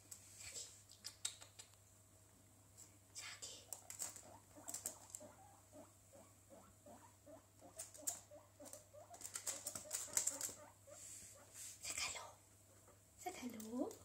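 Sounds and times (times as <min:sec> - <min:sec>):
guinea pig squeaking: 0:03.7 - 0:11.4.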